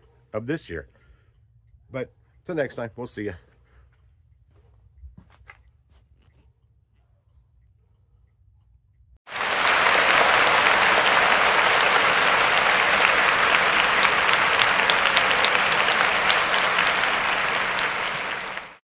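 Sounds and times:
crowd applause: 9.3 - 18.8.

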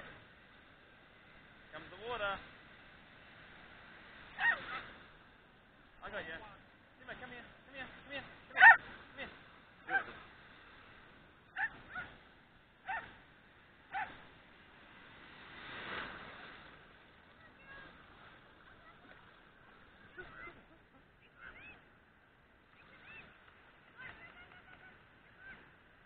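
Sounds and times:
dog yelping: 4.4 - 4.8, 8.6 - 8.8, 9.9 - 10.1, 11.6 - 12.1, 12.9 - 13.1, 13.9 - 14.2.

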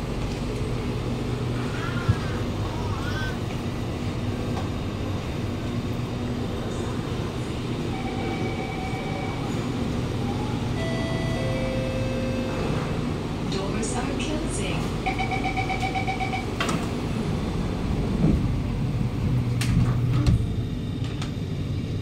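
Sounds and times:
train humming at platform: 0.0 - 22.0.

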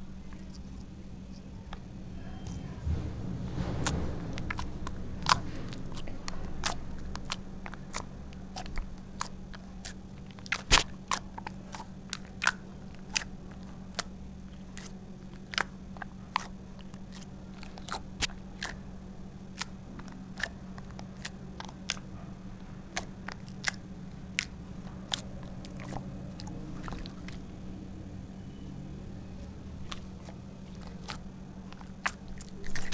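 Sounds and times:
low hum: 0.0 - 32.9
wet pops of poked slime: 10.5 - 10.9.

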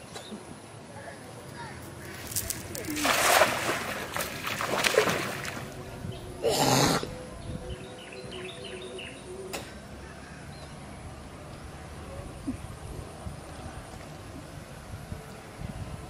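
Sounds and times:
net splashing into water: 2.1 - 5.8.

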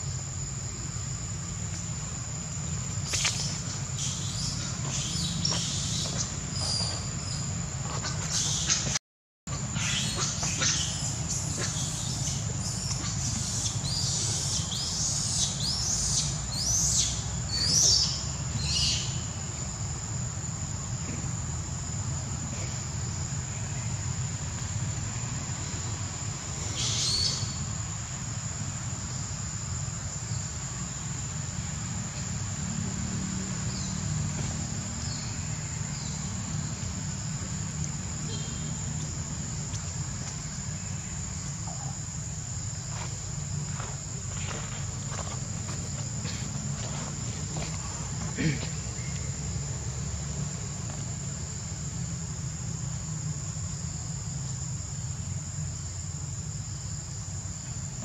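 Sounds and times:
insects droning: 0.0 - 58.0.

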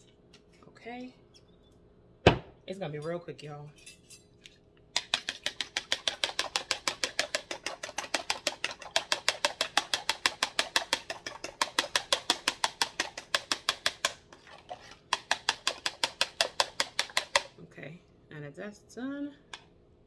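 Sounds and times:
fork beating eggs in plastic: 4.9 - 17.6.

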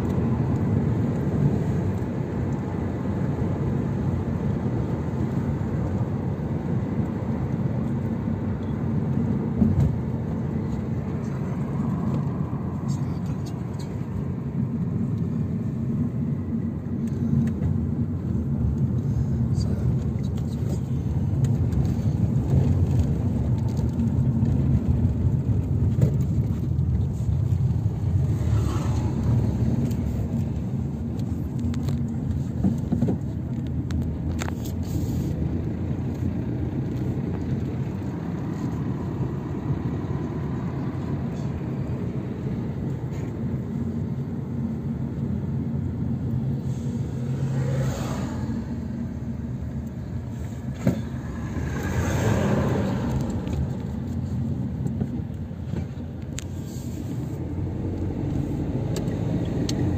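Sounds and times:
car engine and road rumble: 0.0 - 59.9.

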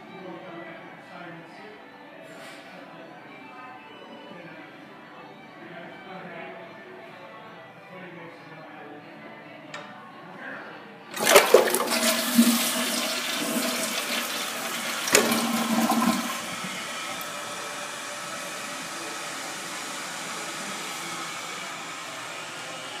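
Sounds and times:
toilet valve clunk: 11.1 - 17.4
fill valve hissing: 11.1 - 23.0
toilet flushing water rushing: 11.1 - 23.0.

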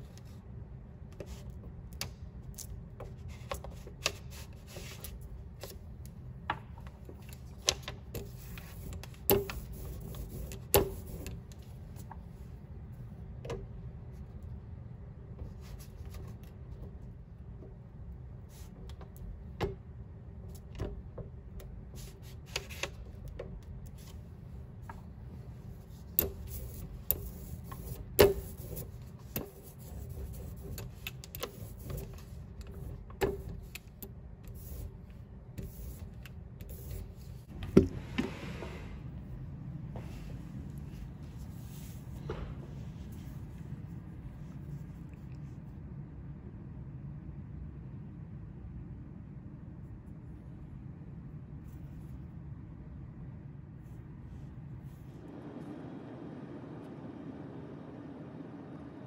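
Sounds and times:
low hum: 55.0 - 59.0.

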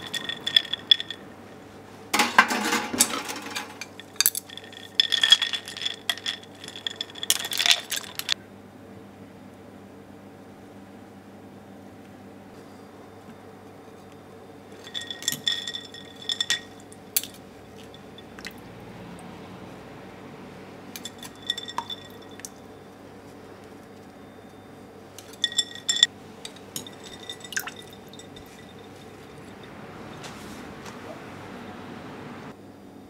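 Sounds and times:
chopsticks clinking on glass bowl: 0.0 - 1.2, 14.8 - 18.6, 21.0 - 22.6, 25.2 - 30.4
steady low hum: 3.1 - 33.0
water splashes and drips: 17.2 - 19.3, 27.2 - 30.9.

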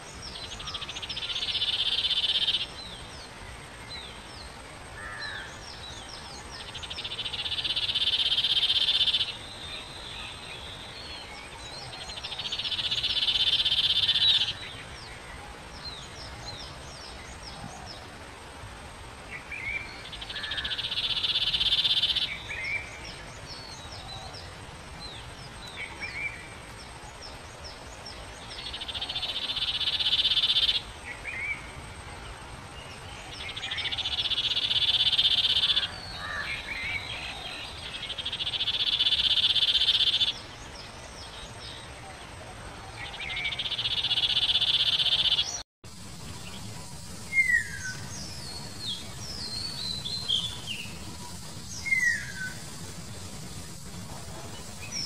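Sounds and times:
loud pulsed buzz: 45.9 - 55.0
bird chirping and whistling: 46.4 - 53.5.

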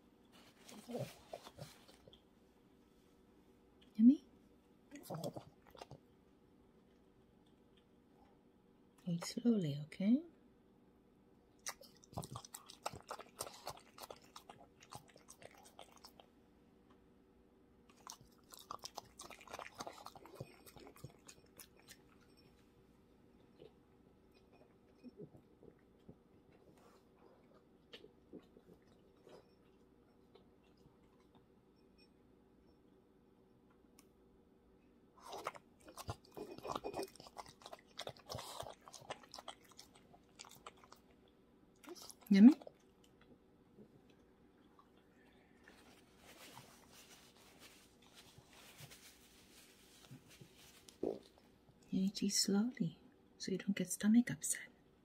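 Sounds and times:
dog chewing wetly: 11.6 - 16.3, 17.9 - 22.5, 35.2 - 43.2.

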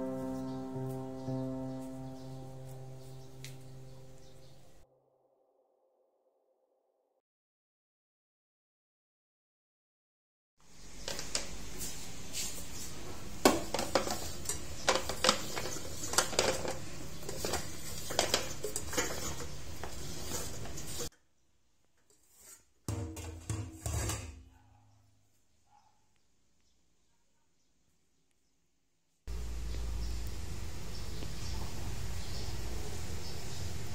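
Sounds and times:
kitchen utensils clattering: 13.2 - 21.1, 22.9 - 24.5.

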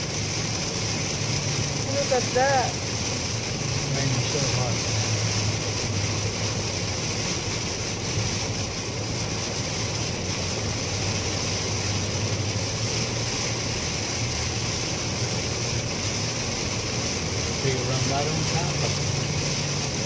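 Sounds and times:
heavy rain on car: 0.0 - 20.0
tyres on wet road: 0.0 - 20.0.

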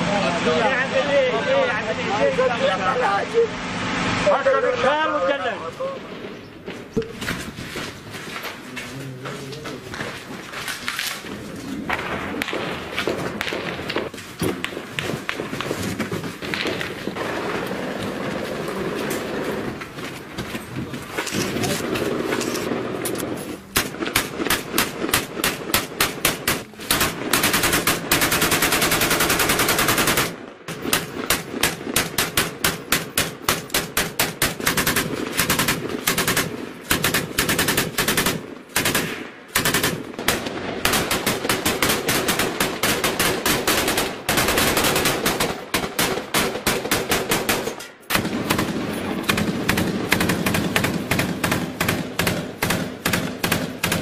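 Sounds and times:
automatic gunfire: 11.9 - 19.6, 21.6 - 54.0.

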